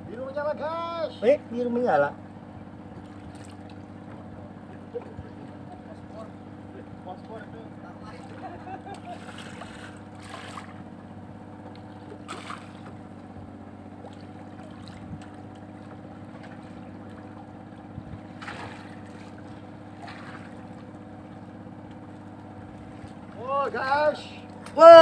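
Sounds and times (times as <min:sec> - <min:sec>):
boat motor droning: 0:00.0 - 0:25.0
water splashing: 0:08.1 - 0:10.9, 0:11.8 - 0:13.2, 0:13.9 - 0:17.5, 0:18.2 - 0:23.5.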